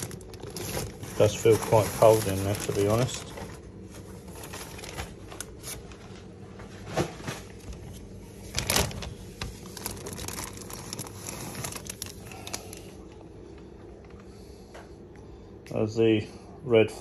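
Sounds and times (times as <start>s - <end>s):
plastic bags crinkling: 0.0s - 13.1s
steady low hum: 0.0s - 17.0s.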